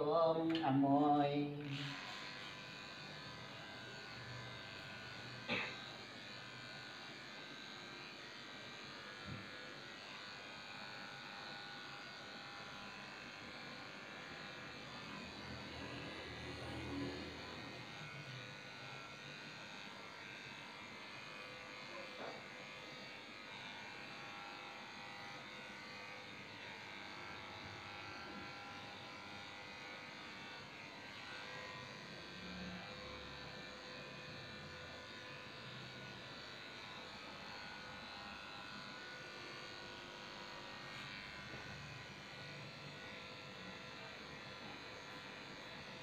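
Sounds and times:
electric clippers buzzing: 0.0 - 46.0.

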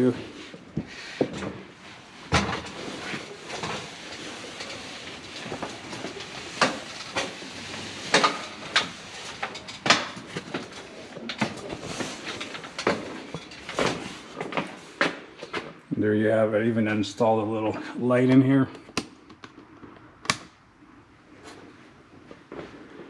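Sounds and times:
tent fabric rustling: 0.0 - 15.1
boots on metal ladder rungs: 2.3 - 15.8.

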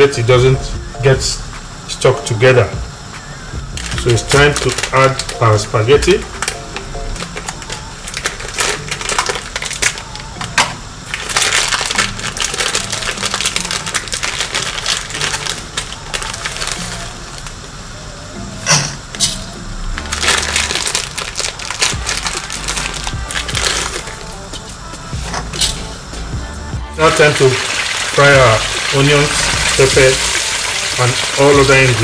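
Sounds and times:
water boiling in a pot: 1.6 - 18.3, 27.0 - 32.0.

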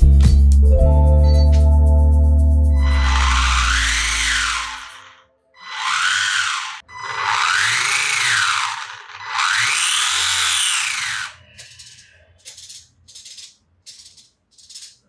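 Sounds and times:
electric motor whine revving: 2.8 - 11.4
servo buzzing: 2.8 - 12.0.

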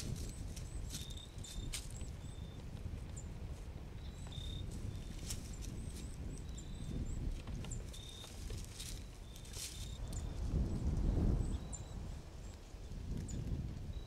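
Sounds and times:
hooves stepping in dry leaves: 0.0 - 13.7
wind rumbling on microphone: 0.0 - 14.0
bird chirping: 0.2 - 3.3, 4.0 - 10.4, 11.4 - 12.6.

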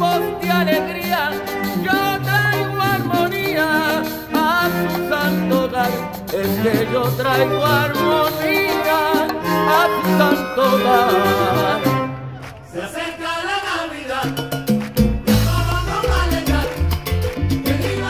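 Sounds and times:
upright bass: 0.0 - 12.2, 14.4 - 18.0
latin band playing: 0.0 - 12.9, 14.0 - 18.0
horns: 0.0 - 14.4
man singing with vibrato: 0.0 - 18.0.

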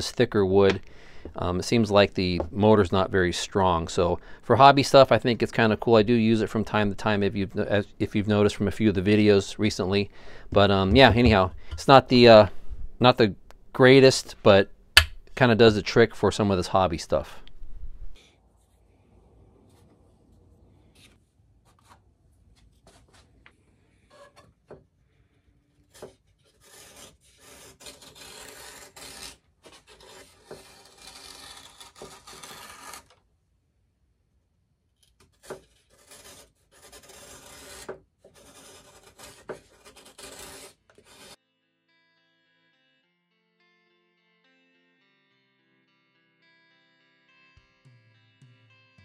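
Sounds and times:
sanding wood by hand: 36.0 - 41.4.

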